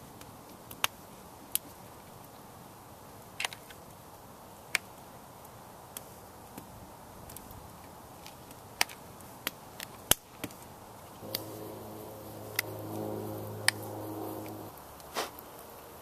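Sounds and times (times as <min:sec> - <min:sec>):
steady low hum: 0:11.2 - 0:15.7.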